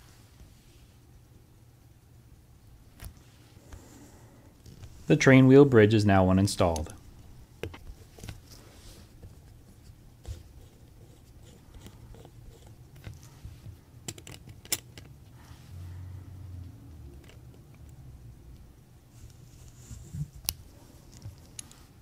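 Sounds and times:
low steady hum: 0.0 - 22.0
screwdriver clicking and scraping metal: 14.0 - 15.1.

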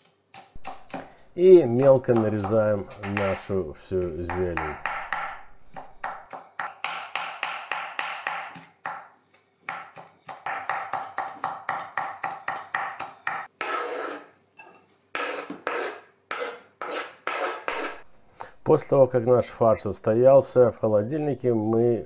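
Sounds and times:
knife chopping herbs on board: 0.0 - 13.5
knife scraping cutting board: 13.6 - 14.4, 15.2 - 18.1.

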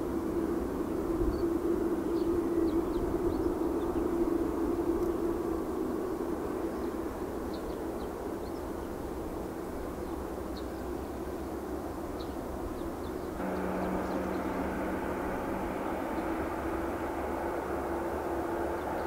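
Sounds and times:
jet engines rumbling: 9.1 - 19.0.

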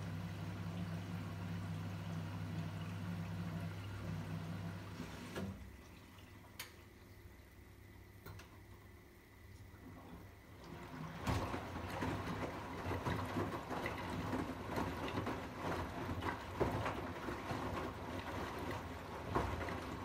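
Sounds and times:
water sloshing and splashing: 9.5 - 20.0
washing machine drum turning: 10.6 - 20.0.

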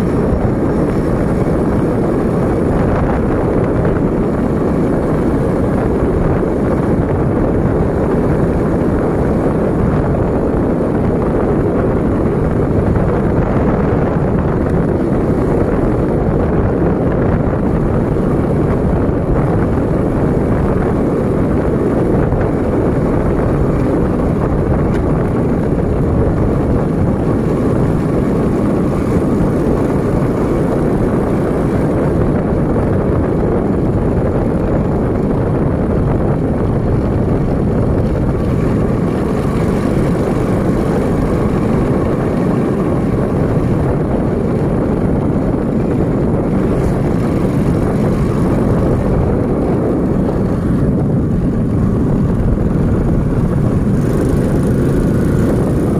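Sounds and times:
vehicle rumbling on paved road: 0.0 - 55.9
wind on the microphone: 0.0 - 55.9.

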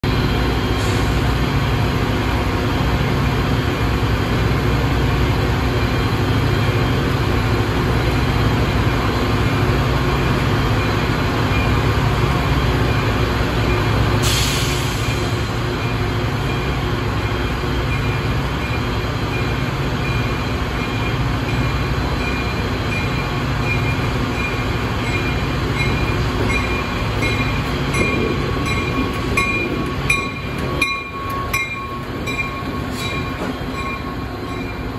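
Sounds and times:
diesel locomotives droning: 0.0 - 34.9
hiss of released air: 14.2 - 15.6.

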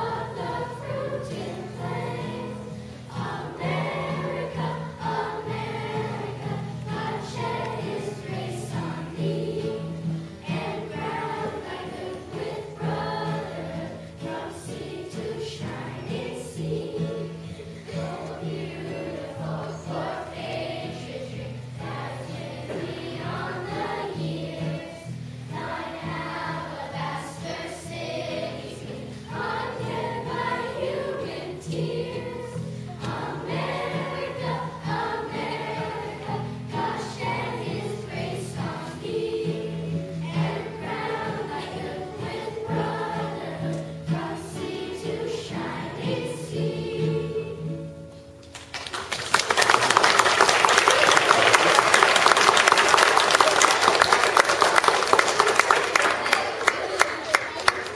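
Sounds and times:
children's choir singing: 0.0 - 48.4, 49.0 - 57.9
acoustic guitar: 0.0 - 57.9.

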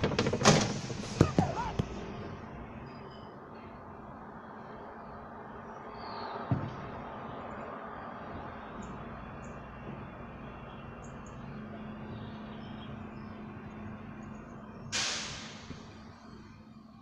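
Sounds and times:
distant diesel truck engine: 0.0 - 17.0
faint bird chirps: 2.8 - 6.5
loud hiss: 14.9 - 16.0.

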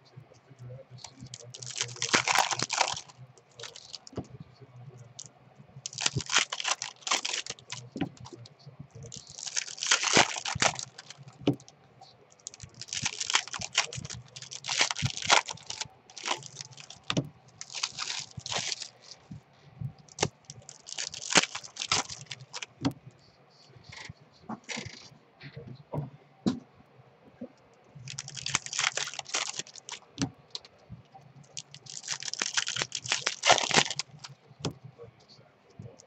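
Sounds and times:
cards being shuffled by hand: 5.9 - 8.4, 9.1 - 11.6, 20.1 - 23.0, 31.6 - 34.8.

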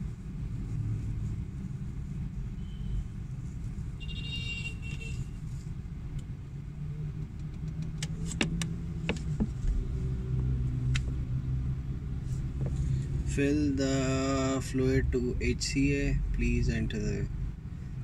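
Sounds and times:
vehicle engine humming: 0.0 - 18.0
sharp clicks: 7.2 - 8.8.

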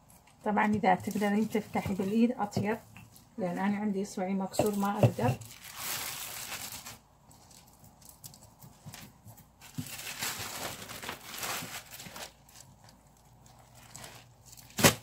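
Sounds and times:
plastic sheet crinkling: 4.6 - 15.0.

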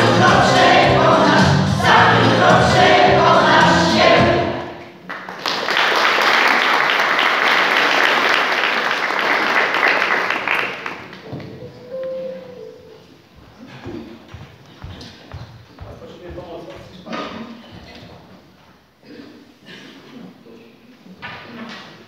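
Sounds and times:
mixed choir singing: 0.0 - 4.9
audience applause: 5.0 - 11.2.

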